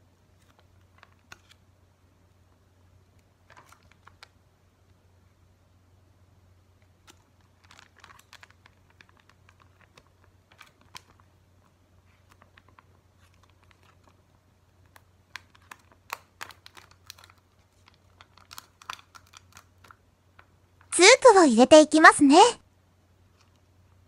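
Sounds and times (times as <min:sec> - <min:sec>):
plastic sachets crinkling: 0:07.0 - 0:20.0.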